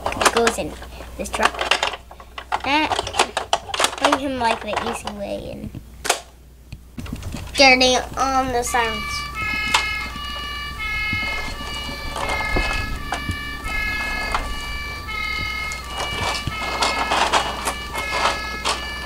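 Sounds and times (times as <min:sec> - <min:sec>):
plastic toy parts clicking: 0:01.3 - 0:05.2, 0:15.4 - 0:18.9
toy electronic siren: 0:08.2 - 0:19.0.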